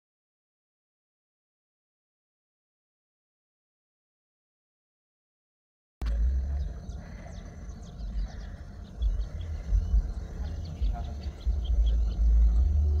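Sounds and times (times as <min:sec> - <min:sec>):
birds chirping: 0:06.0 - 0:13.0
wind buffeting microphone: 0:06.0 - 0:13.0.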